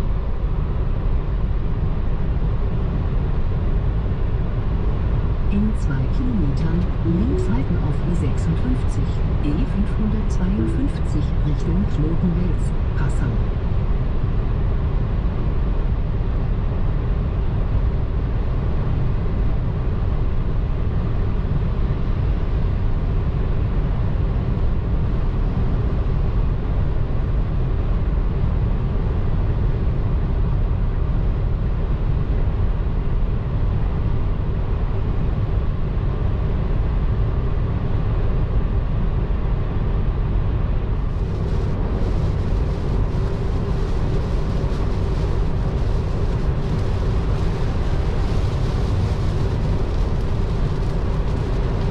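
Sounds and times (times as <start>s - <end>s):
car road and wind noise: 11.4s - 51.9s.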